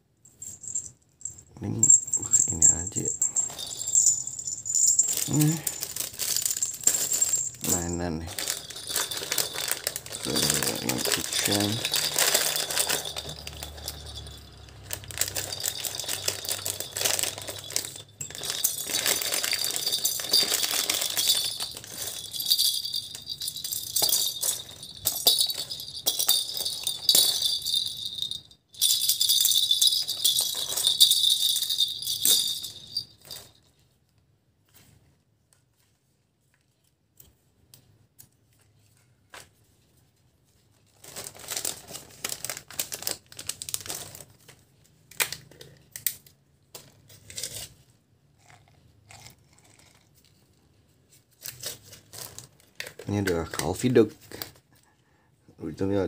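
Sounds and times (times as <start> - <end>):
small bells jingling in plastic balls: 0.3 - 33.8.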